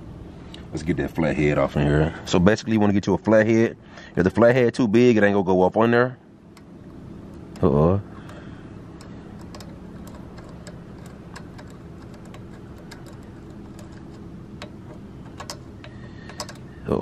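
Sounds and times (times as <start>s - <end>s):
low hum: 5.0s - 17.0s
screwdriver clicking on metal: 6.5s - 16.7s.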